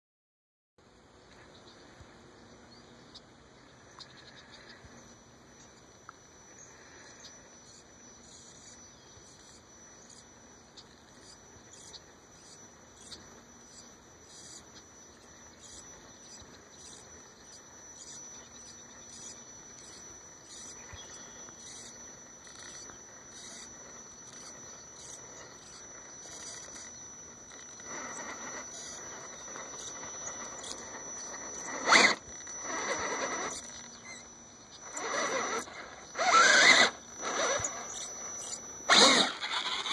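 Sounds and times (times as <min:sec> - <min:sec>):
electric motor whine: 0:01.3 - 0:39.9.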